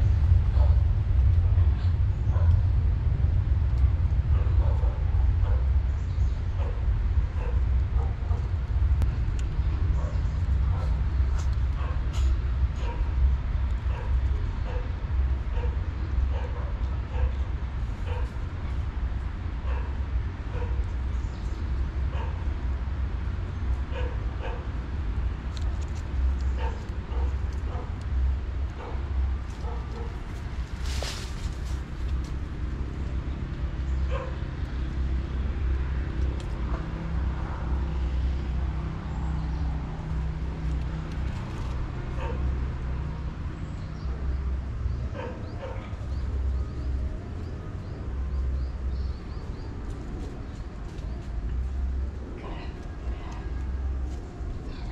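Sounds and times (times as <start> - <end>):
steady low rumble: 0.0 - 54.9
small birds chirping: 19.7 - 36.8, 43.4 - 54.9.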